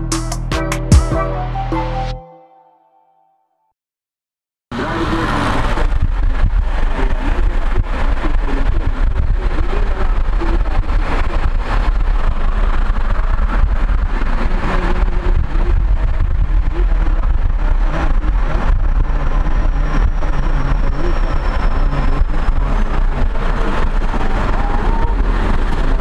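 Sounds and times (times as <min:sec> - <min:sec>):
car road noise rumble: 0:04.8 - 0:26.0.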